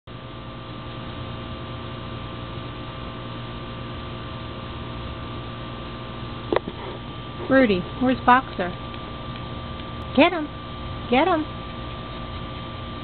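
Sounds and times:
steady hum: 0.1 - 13.0.

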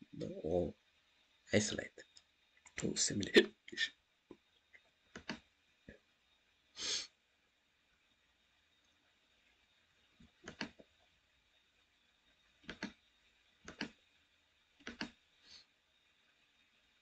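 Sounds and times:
computer mouse clicks: 5.1 - 5.4, 10.4 - 10.9, 12.6 - 13.0, 13.6 - 14.0, 14.8 - 15.2.

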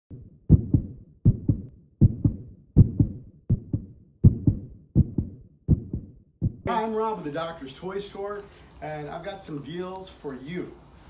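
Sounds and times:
heartbeat thumps: 0.1 - 6.7.

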